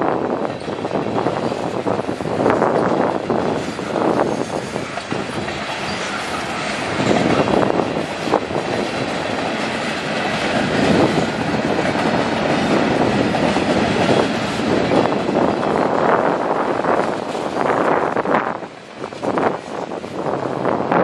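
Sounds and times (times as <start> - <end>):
train wheels rolling on rail: 0.0 - 21.0
wheels clacking over rail joints: 0.3 - 20.6.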